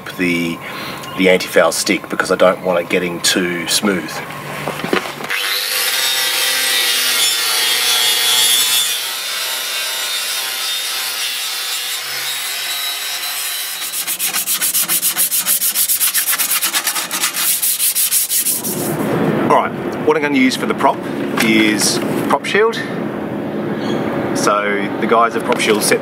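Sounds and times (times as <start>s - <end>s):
power tool abrasive whine: 4.1s - 16.1s
sandpaper rubbing on metal: 12.7s - 19.1s.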